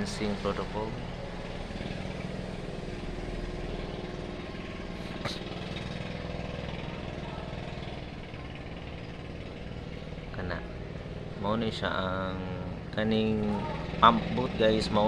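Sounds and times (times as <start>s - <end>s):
small boat engine running: 0.0s - 15.0s.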